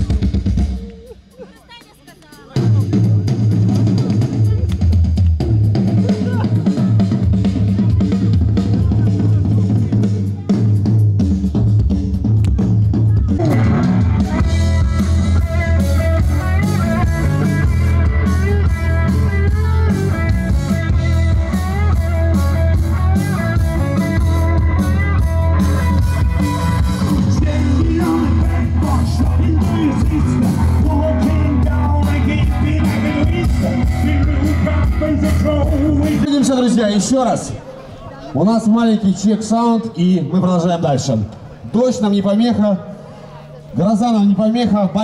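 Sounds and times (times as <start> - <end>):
rock band playing loudly: 0.0 - 37.6
person singing: 27.0 - 36.4.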